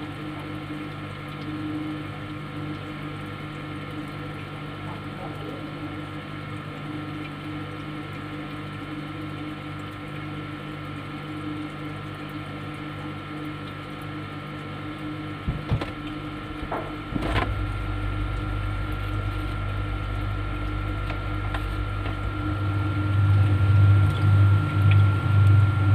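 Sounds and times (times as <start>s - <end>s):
refrigerator humming: 0.0s - 25.9s
deeper low hum: 15.3s - 25.9s.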